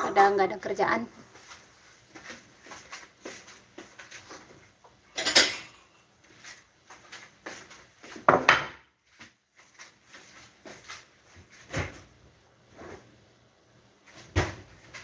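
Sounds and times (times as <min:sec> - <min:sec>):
dishes and utensils clattering: 0:05.1 - 0:06.0.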